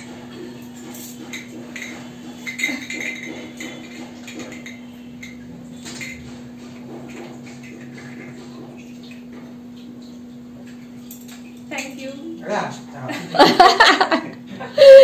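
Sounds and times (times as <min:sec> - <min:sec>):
brass dishes clinking: 0:00.0 - 0:11.6.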